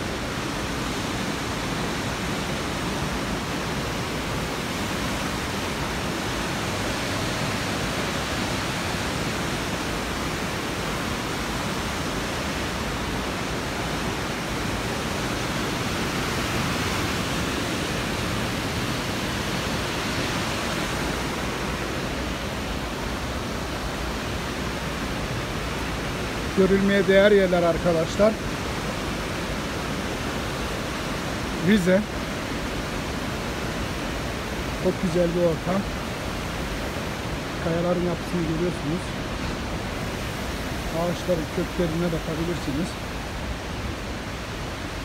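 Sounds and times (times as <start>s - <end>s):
waterfall rushing: 0.0s - 45.0s.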